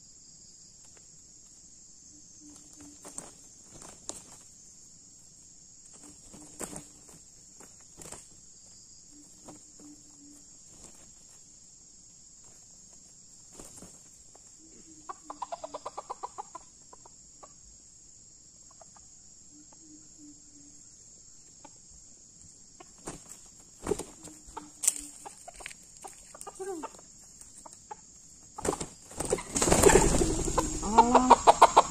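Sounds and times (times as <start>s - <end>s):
high buzz of insects: 0.0s - 31.9s
junglefowl clucking: 14.6s - 17.6s, 23.9s - 31.9s.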